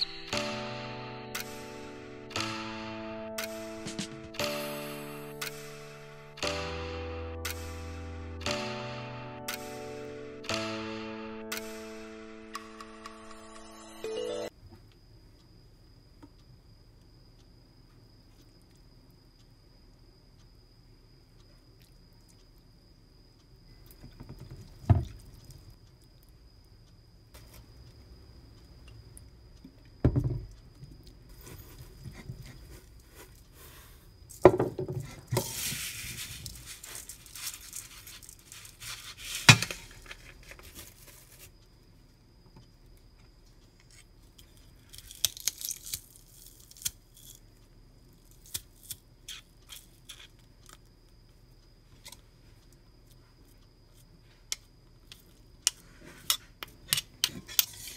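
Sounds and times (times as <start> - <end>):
seeds rattling into bowl: 35.4 - 39.5
metal spoon scraping steel bowl: 56.2 - 57.9.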